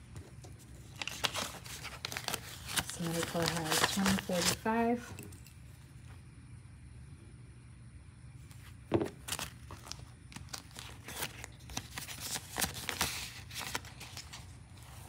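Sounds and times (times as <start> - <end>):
banknotes rustling: 0.0 - 5.1, 8.4 - 15.0
plastic zip pouch crinkling: 0.8 - 4.7, 9.2 - 14.4.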